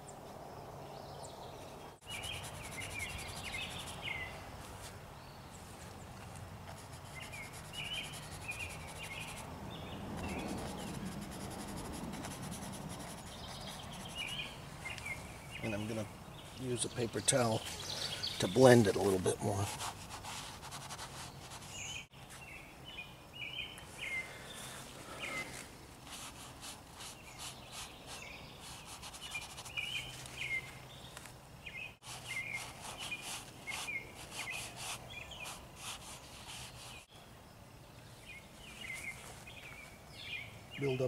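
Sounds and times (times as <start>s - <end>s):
small birds chirping: 0.0s - 41.0s
faint scratchy rustling: 2.0s - 9.5s, 10.2s - 22.6s, 23.8s - 31.4s, 38.6s - 40.0s.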